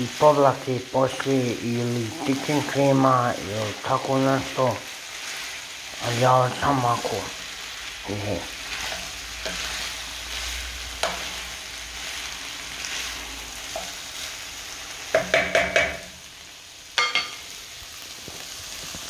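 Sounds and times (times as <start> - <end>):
food sizzling in a frying pan: 0.0 - 19.0
wooden spatula stirring: 2.0 - 14.4.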